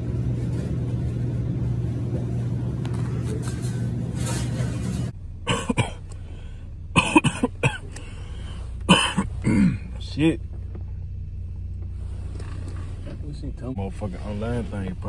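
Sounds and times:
steady low hum: 0.0 - 15.0
man coughing: 5.4 - 6.1, 7.0 - 7.9, 8.9 - 10.0.

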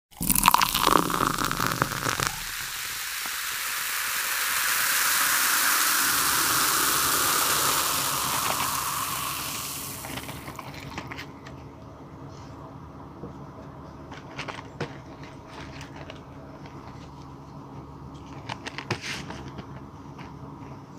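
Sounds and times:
smooth hissing rush: 0.2 - 10.8.

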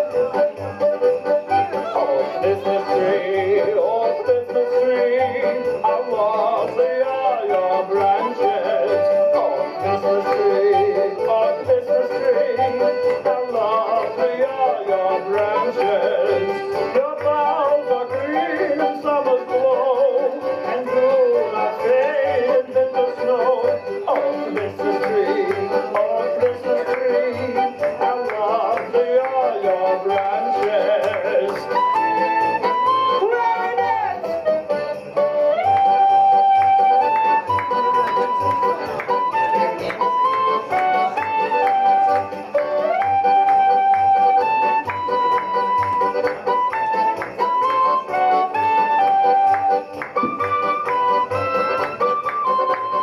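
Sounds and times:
instrumental backing track: 0.0 - 53.0
lead melody: 0.0 - 53.0.

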